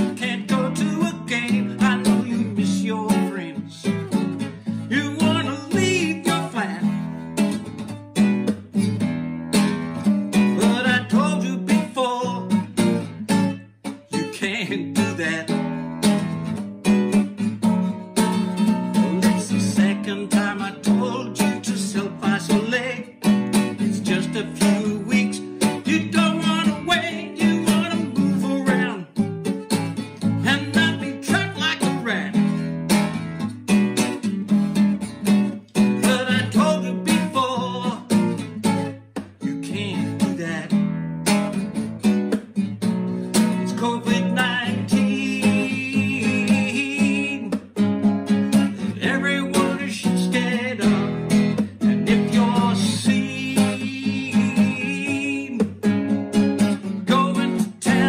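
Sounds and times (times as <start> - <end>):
man singing: 0.0 - 7.3, 10.3 - 13.2, 13.8 - 16.2, 18.7 - 29.3, 30.2 - 32.7, 35.7 - 41.0, 43.3 - 58.0
classical guitar strummed: 0.0 - 58.0.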